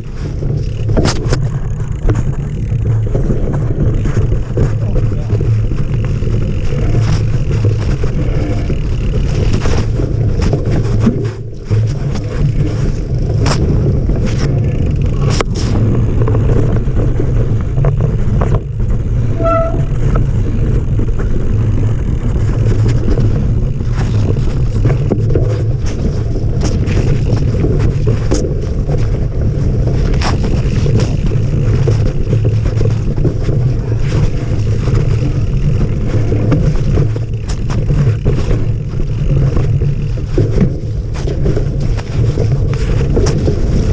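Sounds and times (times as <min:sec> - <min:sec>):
bike rattling clicks and knocks: 0:00.0 - 0:43.9
tyres rumbling on dirt: 0:00.0 - 0:43.9
wind on microphone: 0:00.0 - 0:43.9
brief squeak: 0:19.4 - 0:20.0.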